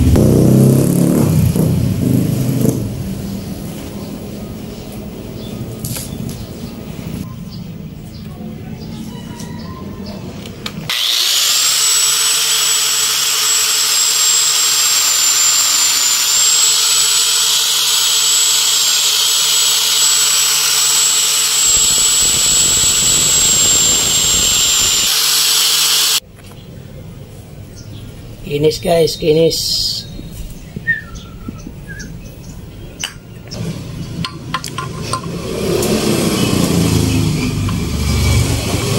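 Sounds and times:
angle grinder whining: 10.5 - 26.2, 33.6 - 38.9.

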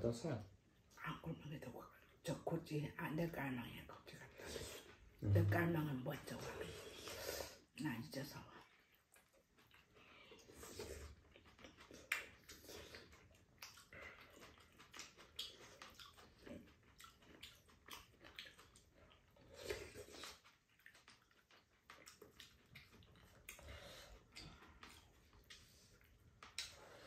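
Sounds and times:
people slurping and chewing: 4.2 - 7.7, 8.3 - 27.0.

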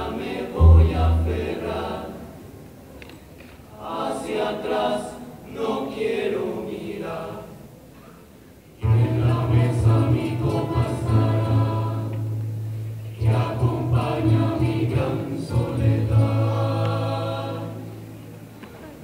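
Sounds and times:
voices singing in chorus: 0.0 - 2.8, 3.6 - 7.7, 8.8 - 18.4
double bass: 0.6 - 2.2, 8.8 - 18.5
acoustic guitars: 8.8 - 19.0.

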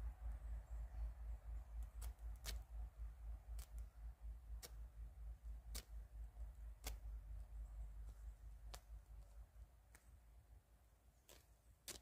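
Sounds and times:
knife cutting fabric clicks: 11.3 - 12.0.

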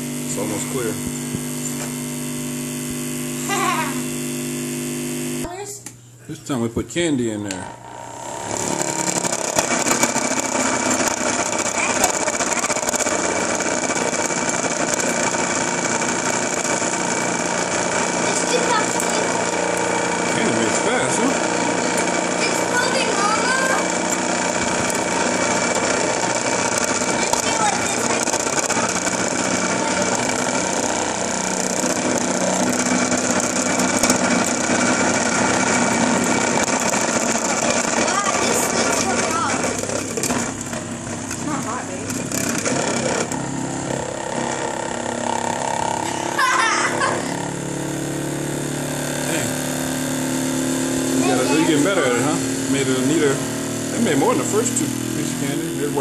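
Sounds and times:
electric motor humming: 0.0 - 5.6, 7.5 - 56.0.

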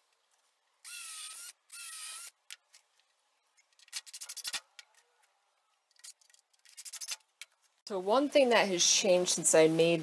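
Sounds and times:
cordless drill whirring: 0.8 - 2.4.

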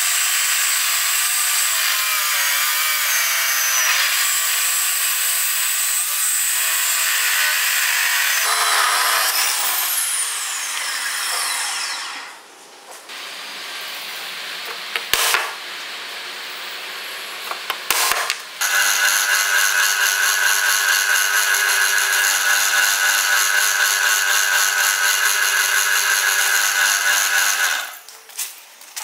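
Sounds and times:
drill press drilling steel: 18.6 - 28.0.

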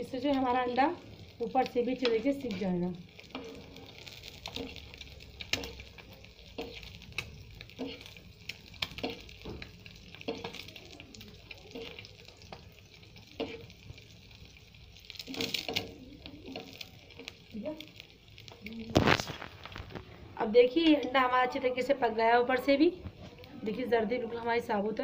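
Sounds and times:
egg sizzling in a frying pan: 0.0 - 25.0
spoon clicking and scraping pan: 3.2 - 14.1, 15.0 - 17.5.

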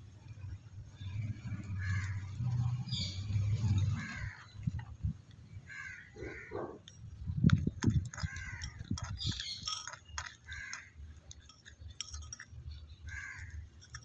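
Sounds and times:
crows cawing: 1.8 - 2.3, 4.0 - 4.6, 5.7 - 6.8, 8.2 - 8.8, 10.4 - 11.0, 13.1 - 13.6
metal spoon clinking on clay pot: 8.1 - 14.0.

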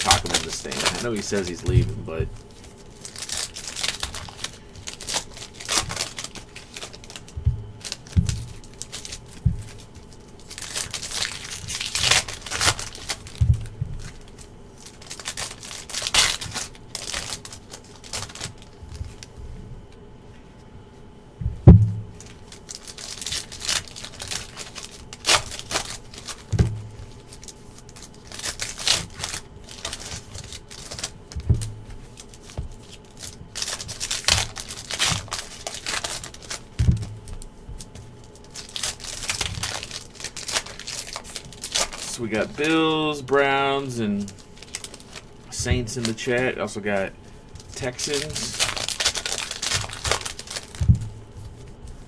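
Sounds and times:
foil wrappers crinkling and tearing: 0.0 - 19.4, 22.1 - 52.0
cards being handled: 0.0 - 20.0, 22.1 - 52.0
soft thuds: 7.4 - 8.5, 21.4 - 22.2, 36.8 - 37.8, 50.8 - 51.2
sharp knock: 21.7 - 22.1.

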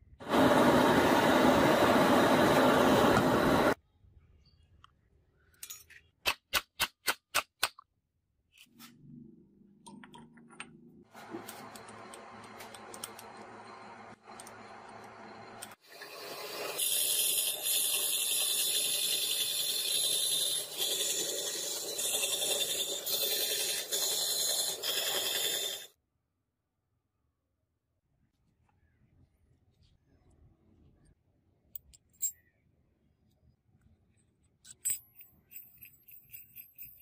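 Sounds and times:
quieter machine running: 11.1 - 15.8
band saw cutting metal: 15.9 - 25.9.

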